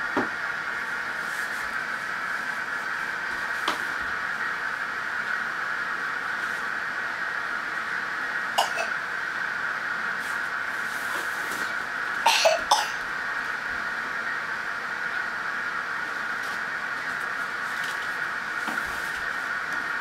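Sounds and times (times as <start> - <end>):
steady hiss: 0.0 - 20.0
toddler cough-like vocal noises: 8.6 - 9.0, 12.3 - 13.0.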